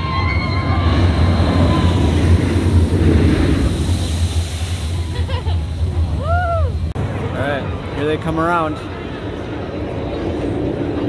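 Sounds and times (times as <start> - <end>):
roller coaster rumbling on track: 0.0 - 11.0
rush of water spray: 1.2 - 7.0.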